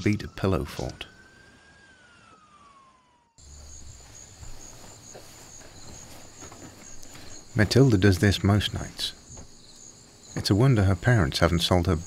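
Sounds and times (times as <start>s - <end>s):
crickets chirping: 3.4s - 12.0s.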